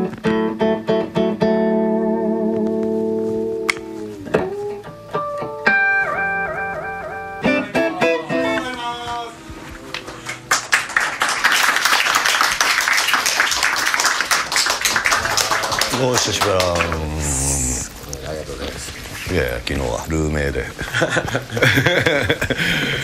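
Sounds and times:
guitar picking single notes: 0.0s - 10.6s
dense crackling noise: 8.6s - 23.0s.

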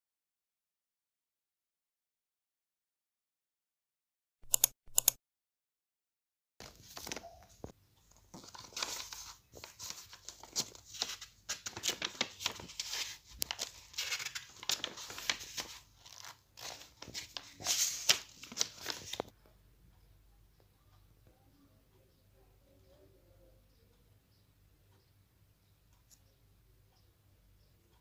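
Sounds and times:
paper rustling and crinkling: 6.6s - 19.3s.

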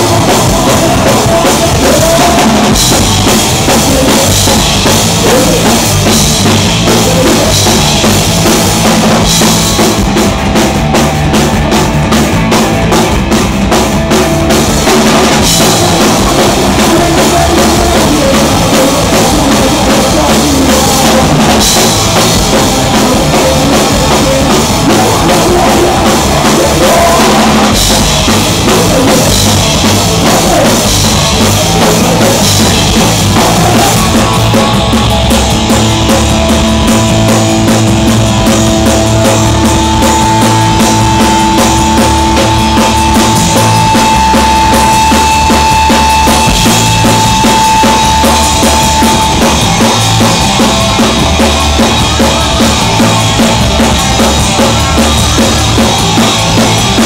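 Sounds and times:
live rock band playing: 0.0s - 57.0s
long held guitar notes: 0.0s - 57.0s.

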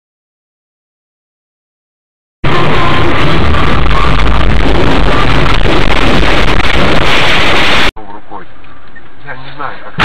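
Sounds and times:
wind: 2.4s - 10.0s.

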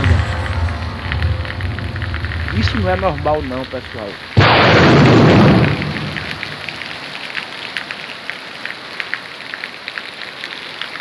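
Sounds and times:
thunderclap: 0.0s - 7.1s
heavy rain on flooded street: 0.0s - 11.0s.

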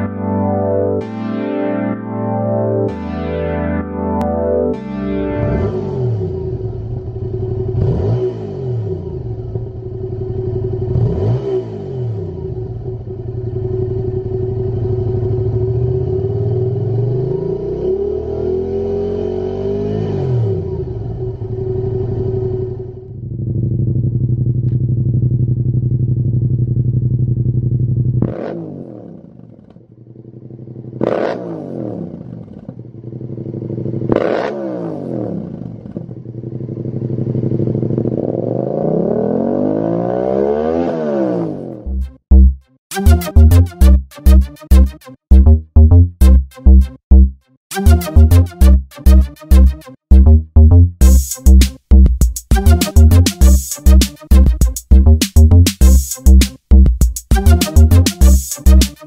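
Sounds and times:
motorcycle engine revving: 5.7s - 42.4s.

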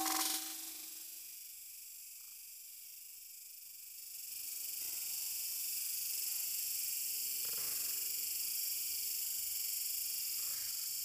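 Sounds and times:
high-pitched insect chorus: 0.0s - 0.8s.

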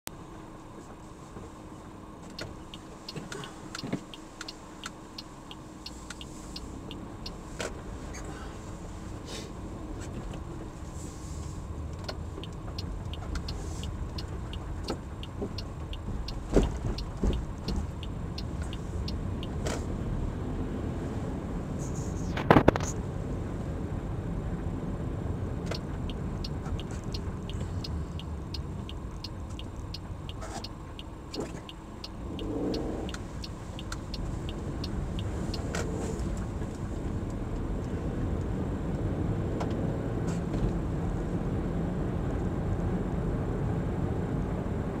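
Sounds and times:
car engine and tyre rumble: 0.1s - 45.0s
light evenly spaced ticks: 2.2s - 8.4s, 10.3s - 19.9s, 25.7s - 37.7s.

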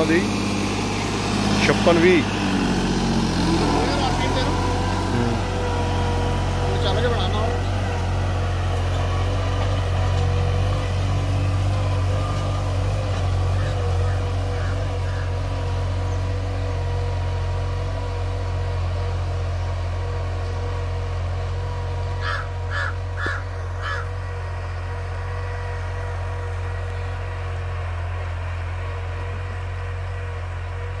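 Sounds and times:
tractor diesel engine idling: 0.0s - 31.0s
crow cawing: 13.5s - 15.4s, 22.2s - 24.2s.

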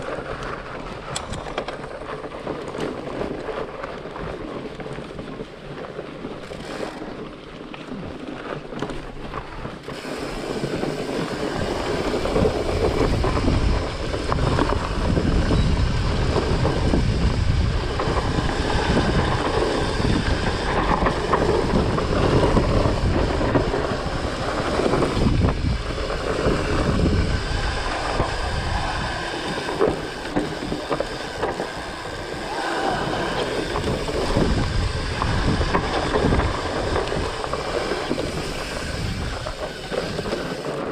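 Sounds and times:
tyres rumbling over dirt trail: 0.0s - 40.9s
wind rushing over microphone: 9.4s - 40.9s.

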